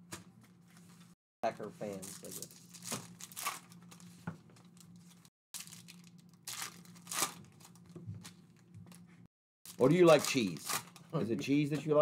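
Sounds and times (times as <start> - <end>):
wrapper rustling: 1.8 - 9.0, 9.7 - 11.2
card pack wrappers tearing: 1.9 - 4.1, 4.8 - 8.0, 9.7 - 11.1.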